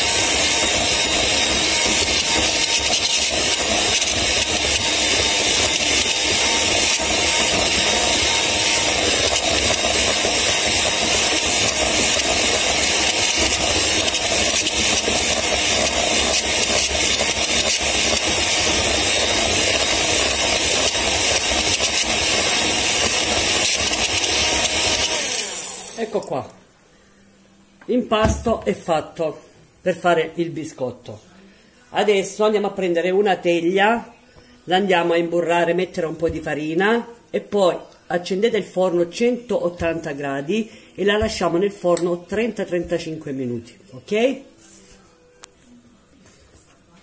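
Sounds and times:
electric hand mixer whisking: 0.0 - 26.4.

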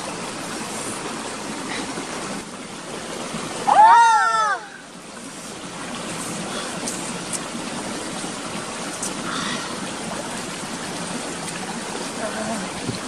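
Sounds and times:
stream flowing: 0.0 - 13.0.

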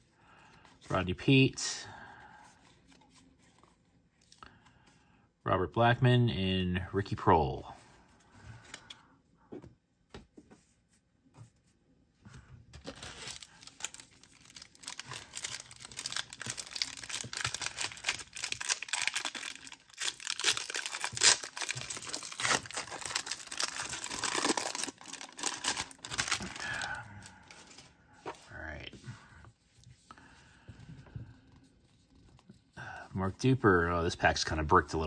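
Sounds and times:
foil wrapper tearing and crinkling: 12.8 - 26.9.

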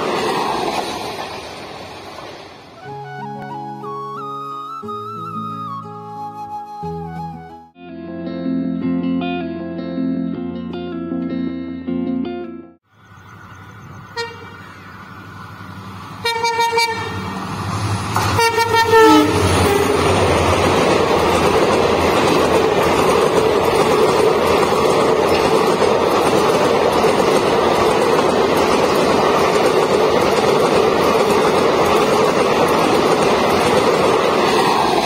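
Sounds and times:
train coaches rolling past: 0.0 - 6.3, 13.0 - 35.0
locomotive horn blasts: 14.1 - 14.7, 16.2 - 17.4, 18.2 - 20.1.

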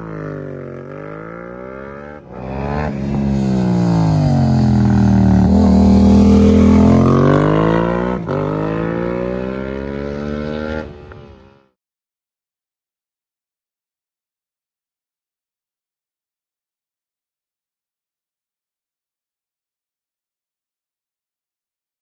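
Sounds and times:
motorcycle engine revving: 0.0 - 11.6.

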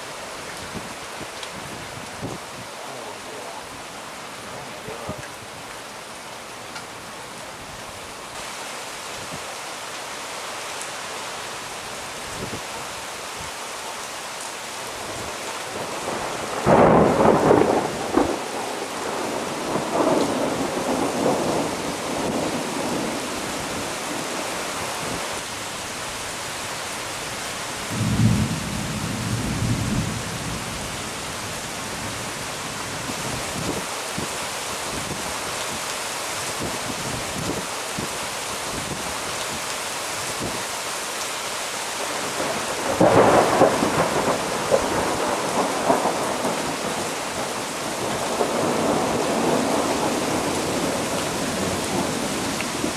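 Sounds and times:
heavy rain: 0.0 - 52.9
thunder rumbling: 15.7 - 24.4, 27.9 - 31.0, 42.0 - 52.9.

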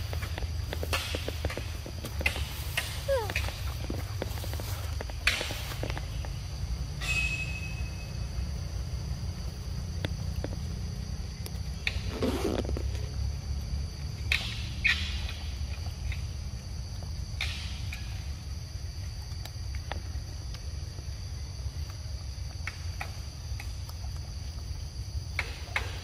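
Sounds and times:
insect drone: 0.0 - 26.0.

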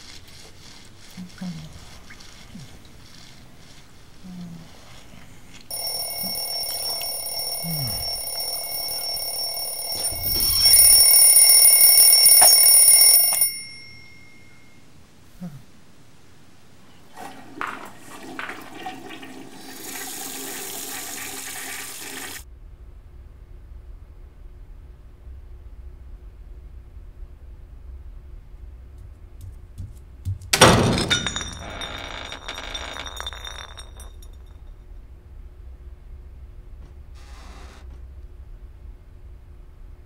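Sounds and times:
bell alarm clock ringing: 5.7 - 14.8, 31.0 - 34.1
toilet flushing: 17.0 - 22.4.

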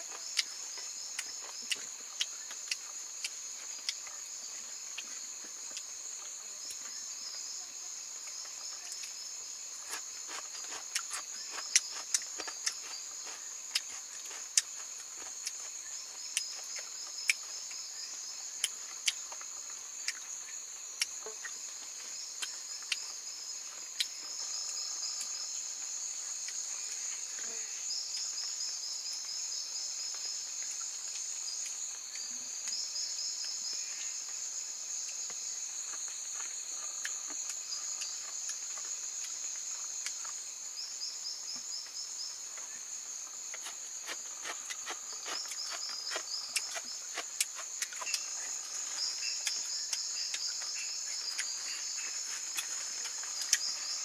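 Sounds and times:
insects chirring: 0.0 - 54.0
fast pulsing insect trills: 43.3 - 54.0.

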